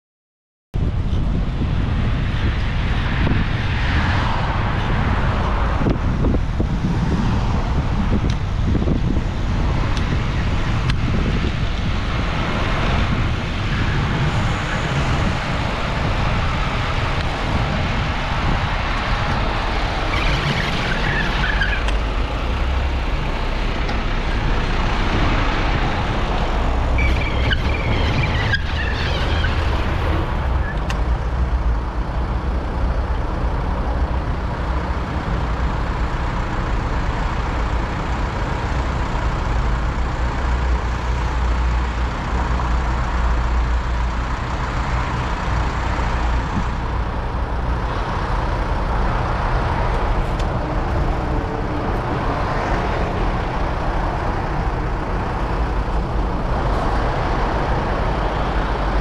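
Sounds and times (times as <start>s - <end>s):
passing motor traffic: 0.8s - 59.0s
tyre and road noise: 0.8s - 59.0s
wind rumble on microphone: 0.8s - 59.0s
high-pitched squeaks: 26.9s - 30.9s.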